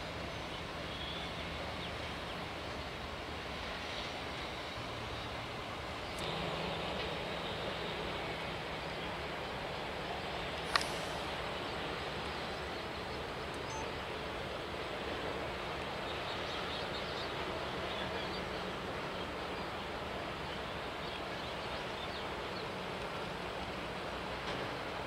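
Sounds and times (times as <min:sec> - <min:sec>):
even hiss: 0:05.7 - 0:13.6.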